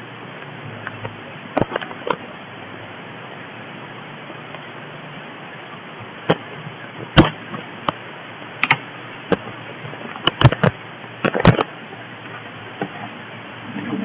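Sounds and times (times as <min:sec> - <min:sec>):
steady hiss: 0:00.0 - 0:14.0
sharp clicks and knocks: 0:00.8 - 0:02.2, 0:08.6 - 0:09.5, 0:10.1 - 0:11.7.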